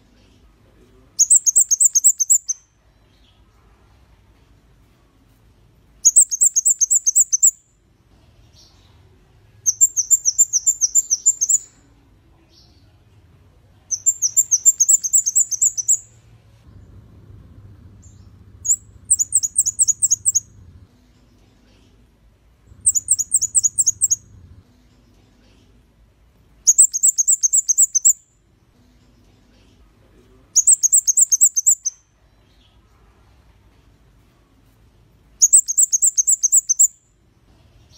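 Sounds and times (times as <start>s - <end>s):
bird singing high repeated notes: 1.2s - 2.7s, 6.0s - 7.6s, 9.6s - 11.8s, 13.9s - 16.2s, 18.0s - 20.6s, 22.7s - 24.4s, 26.6s - 28.3s, 30.6s - 32.0s, 35.4s - 37.0s.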